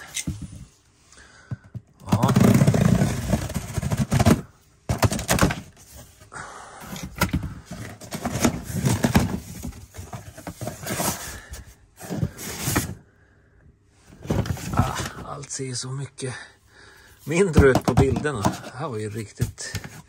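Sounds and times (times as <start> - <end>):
knocks and clatter of parts: 1.4 - 6.2, 6.9 - 11.2, 17.4 - 20.0
packaging rustling: 7.0 - 13.0.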